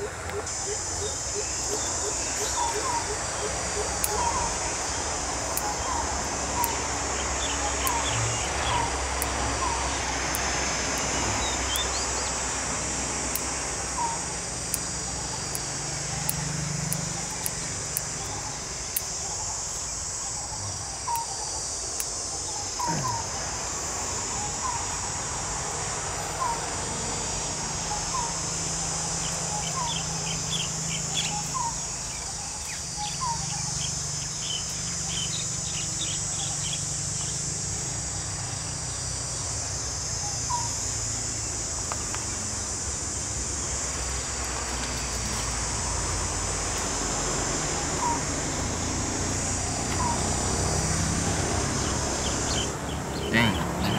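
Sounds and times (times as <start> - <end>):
bird chirping: 0.0 - 12.4, 22.4 - 23.4, 27.9 - 37.4, 49.8 - 53.9
crickets droning: 0.0 - 53.9
sharp clicks: 3.9 - 4.5, 7.8 - 9.4, 10.3 - 11.1, 14.6 - 19.8
higher bird calls: 22.4 - 23.4.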